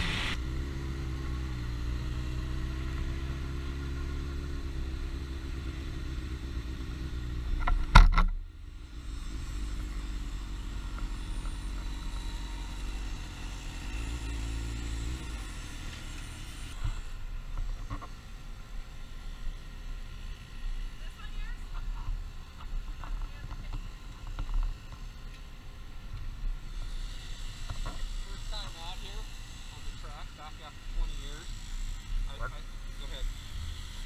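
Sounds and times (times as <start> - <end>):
motorcycle engine at low revs: 0.0 - 20.4.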